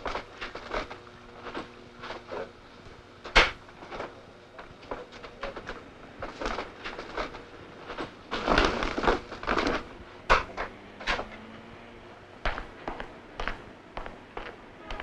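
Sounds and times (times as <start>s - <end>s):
footsteps: 12.4s - 15.0s.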